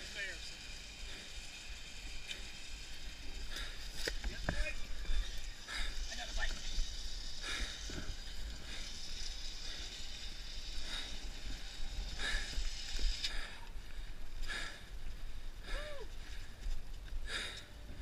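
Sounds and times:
short hissing sounds: 0:00.2 - 0:13.8.

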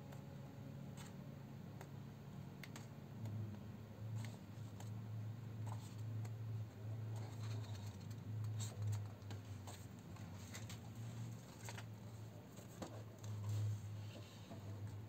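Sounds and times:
book pages turning: 0:00.9 - 0:01.2, 0:07.1 - 0:15.0.

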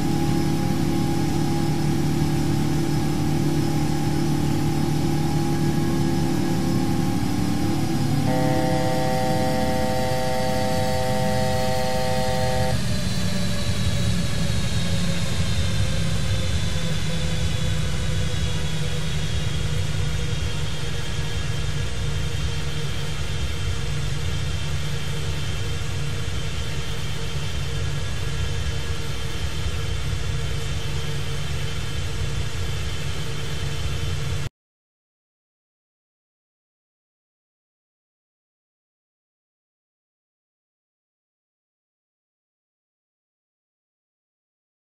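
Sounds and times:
faint whining tones: 0:00.0 - 0:29.8
airliner engine rumble: 0:00.0 - 0:34.5.

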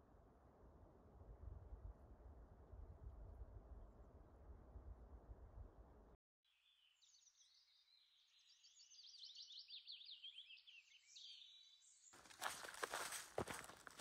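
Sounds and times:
footsteps: 0:12.2 - 0:14.0.

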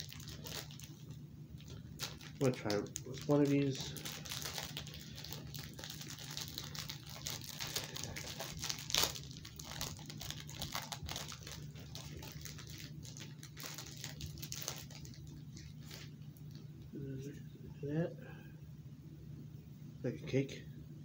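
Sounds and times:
wrapper crinkling: 0:00.0 - 0:16.7.

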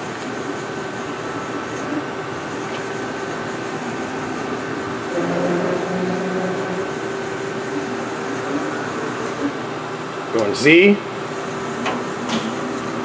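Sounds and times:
machine hum: 0:00.0 - 0:13.0
axis drive tone: 0:01.2 - 0:09.6.

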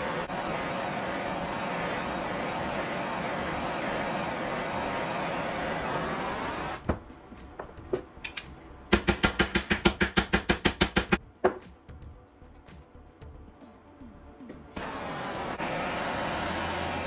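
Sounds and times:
gas torch hissing: 0:00.0 - 0:06.8, 0:14.8 - 0:17.0.

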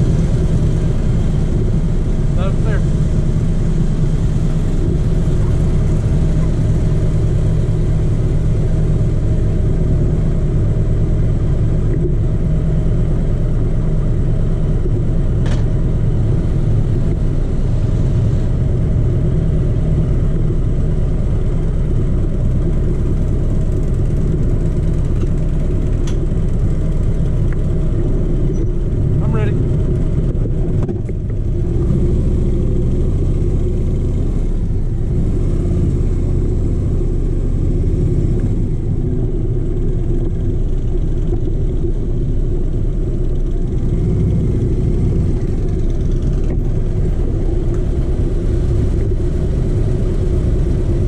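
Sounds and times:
motorcycle engine idling: 0:00.0 - 0:35.1, 0:36.1 - 0:51.0.

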